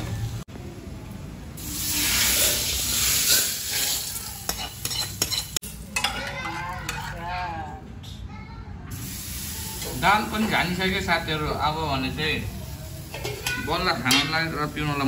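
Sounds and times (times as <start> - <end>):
food sizzling in hot oil: 1.6 - 6.3, 8.9 - 15.0.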